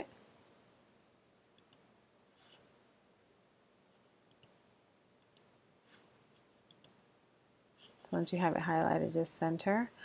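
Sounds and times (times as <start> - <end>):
computer mouse clicks: 1.6 - 1.9, 4.3 - 4.6, 5.2 - 5.5, 6.6 - 7.0, 7.8 - 9.0.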